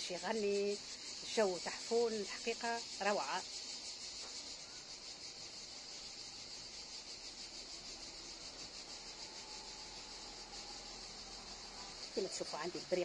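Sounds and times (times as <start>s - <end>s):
cicadas buzzing: 0.0s - 13.0s.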